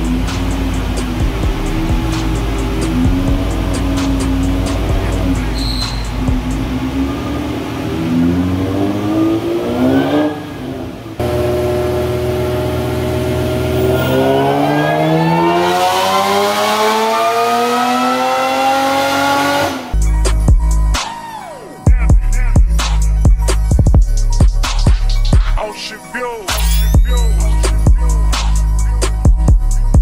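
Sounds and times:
car engine revving under load: 0.0 - 20.4.

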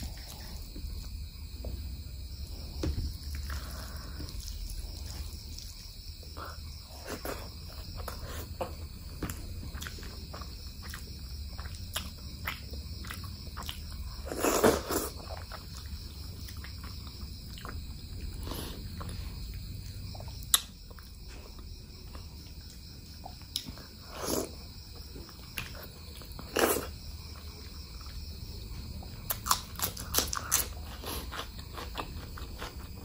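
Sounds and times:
chewing with wet mouth smacks: 9.2 - 21.1.

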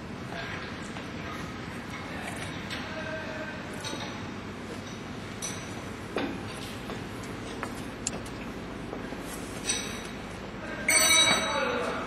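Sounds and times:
factory hall background noise: 0.0 - 12.0.

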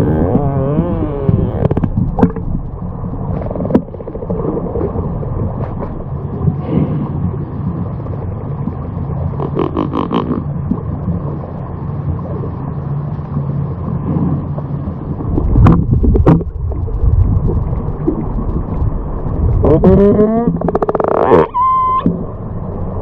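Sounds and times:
outboard motor hum underwater: 0.0 - 23.0
water noise: 0.0 - 23.0
killer whales calling: 9.4 - 10.5, 19.6 - 22.2.

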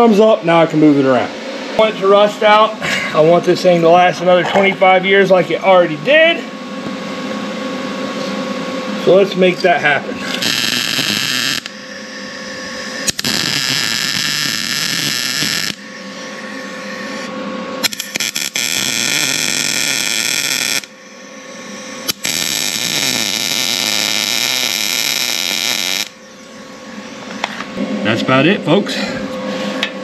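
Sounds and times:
welder arc crackling and hissing: 9.1 - 27.6.

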